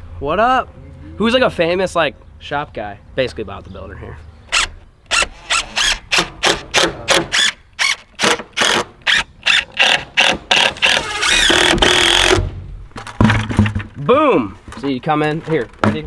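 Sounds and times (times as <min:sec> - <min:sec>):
drill driving screws into wood: 0:04.5 - 0:12.5.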